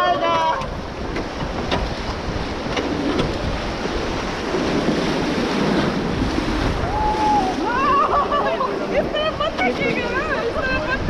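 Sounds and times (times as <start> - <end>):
wind buffeting microphone: 0.0 - 11.0
river rapids rushing and splashing: 3.0 - 11.0.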